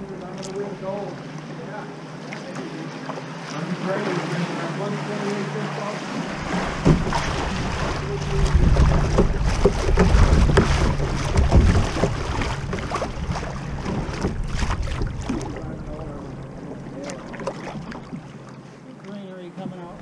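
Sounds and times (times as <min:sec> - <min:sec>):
rushing river water: 0:00.0 - 0:20.0
small water splashes: 0:00.0 - 0:20.0
wind rumble on microphone: 0:06.3 - 0:16.6.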